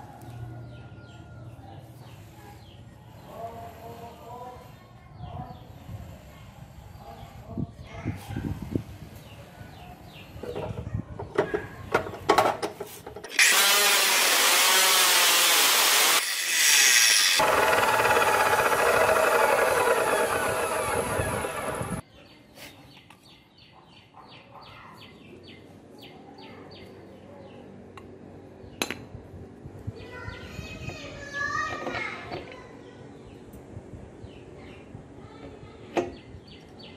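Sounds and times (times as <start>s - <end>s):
chop saw grinding metal: 13.3s - 22.0s.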